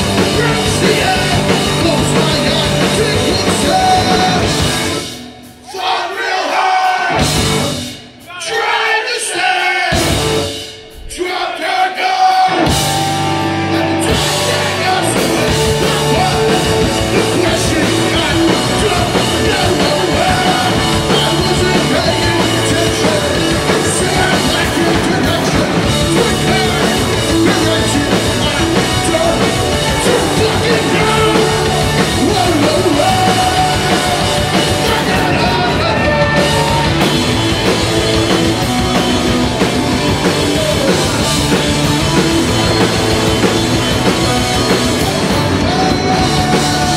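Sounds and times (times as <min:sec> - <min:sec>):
punk rock band playing: 0:00.0 - 0:46.9.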